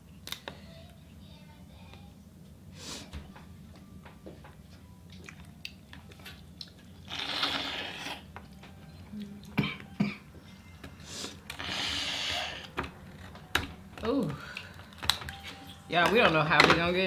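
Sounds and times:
seafood shells clicking and crackling: 0:12.8 - 0:16.2.

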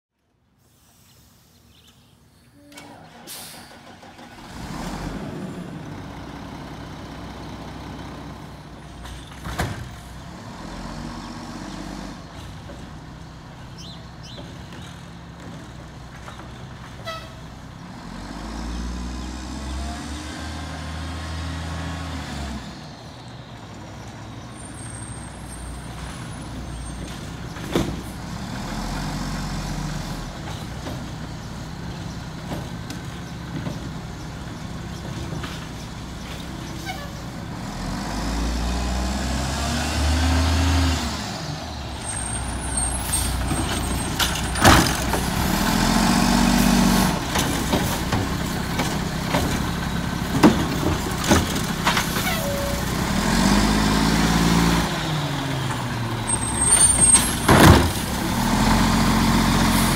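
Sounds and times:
air brake bursts: 0:00.6 - 0:01.5, 0:02.6 - 0:04.2
garbage truck diesel engine: 0:02.5 - 0:59.9.

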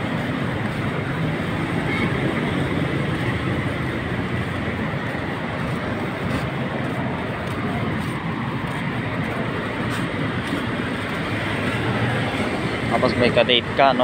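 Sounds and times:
road traffic rumble: 0:00.0 - 0:14.0.

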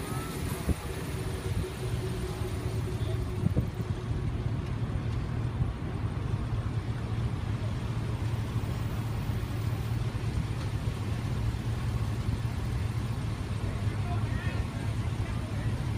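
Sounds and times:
low engine hum: 0:00.0 - 0:15.9
trucks rolling past: 0:00.0 - 0:15.9.

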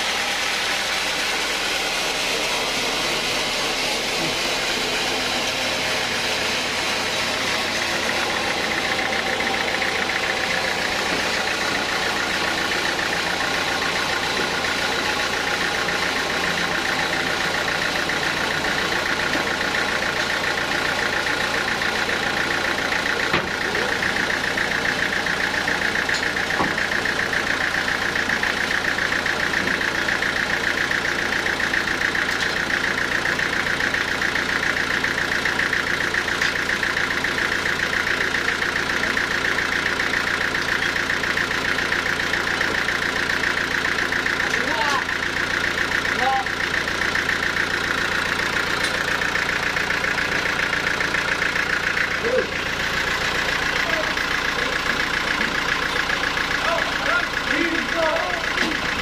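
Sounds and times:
band saw whirring: 0:00.0 - 0:40.2.

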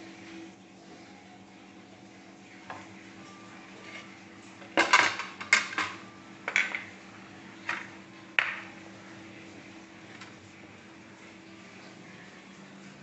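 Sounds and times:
dishes and utensils clattering: 0:03.6 - 0:07.0, 0:07.6 - 0:08.8.

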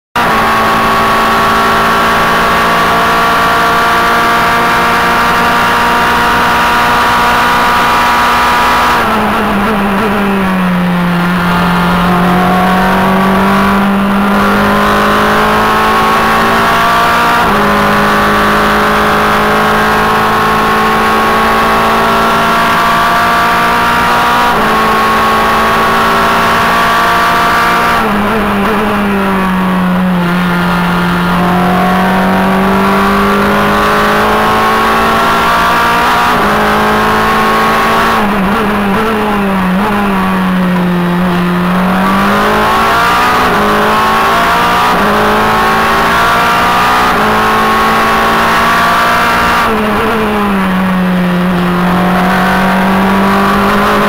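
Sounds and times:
race car engine at full throttle: 0:00.0 - 0:54.0.

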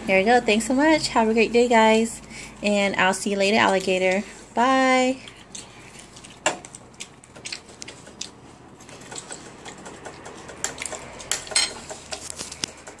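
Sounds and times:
cutlery clinking on ceramic plate: 0:11.4 - 0:11.8.

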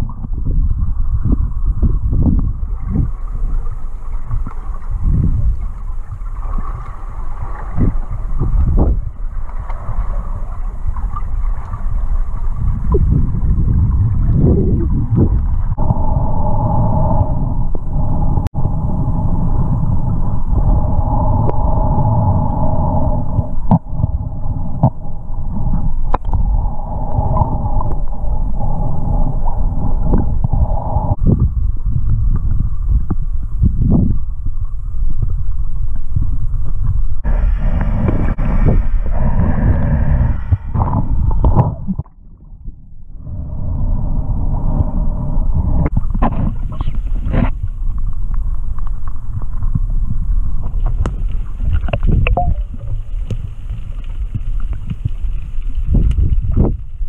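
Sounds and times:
underwater rumble: 0:00.0 - 0:57.0
steady hum: 0:15.7 - 0:31.6, 0:37.2 - 0:46.5.

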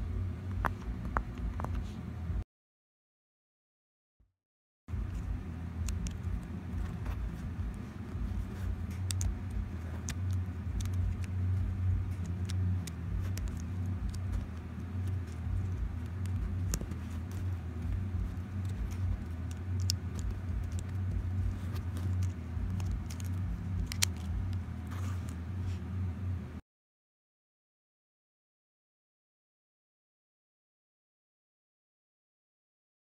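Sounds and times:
steady low rumble: 0:00.0 - 0:02.4, 0:04.9 - 0:26.6
plastic puzzle clicking: 0:12.2 - 0:24.4.

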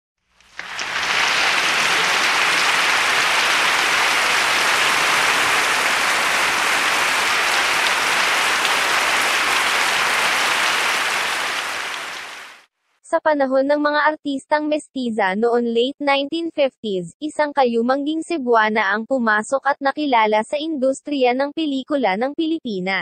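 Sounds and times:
dense applause: 0:00.4 - 0:12.6.

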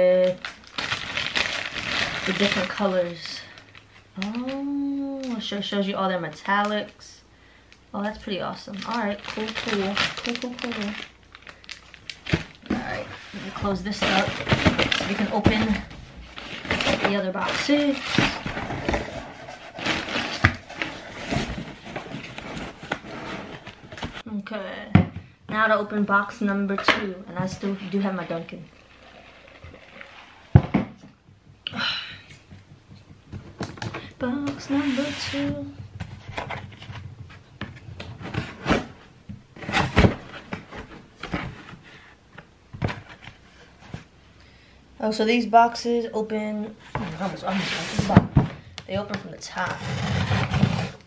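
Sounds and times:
plastic packaging rustling: 0:00.0 - 0:07.0, 0:08.1 - 0:24.2
cardboard box scraping and rustling: 0:12.7 - 0:24.2, 0:34.6 - 0:35.7, 0:46.9 - 0:48.2, 0:49.6 - 0:51.0.

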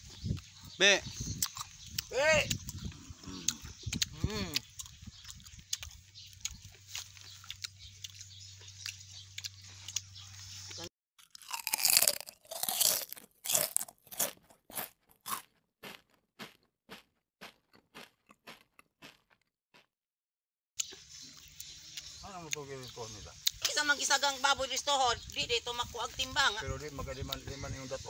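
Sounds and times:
crisp chewing crunches: 0:01.3 - 0:19.9
crunching bite into mango: 0:01.3 - 0:19.9, 0:20.8 - 0:23.7.

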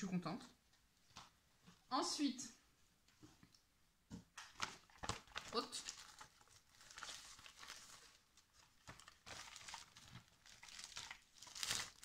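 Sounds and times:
packaging crinkling as unwrapped: 0:04.4 - 0:12.0.

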